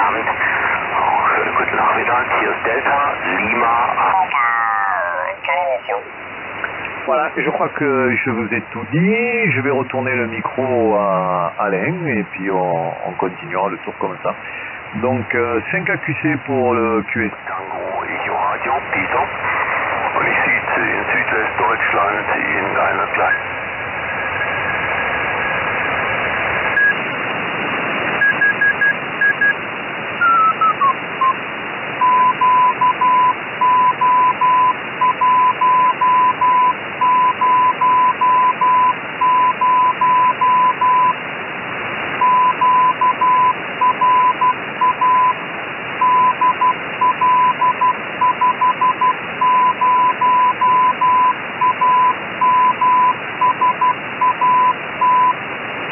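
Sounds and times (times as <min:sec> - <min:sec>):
receiver hiss: 0:00.0 - 0:55.9
morse code tone: 0:30.2 - 0:31.4, 0:32.0 - 0:41.2, 0:42.2 - 0:45.4, 0:46.0 - 0:55.4.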